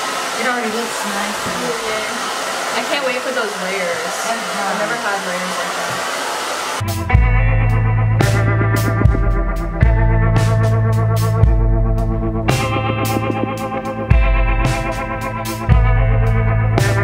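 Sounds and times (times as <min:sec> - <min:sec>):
hair dryer blowing: 0:00.0 - 0:07.0.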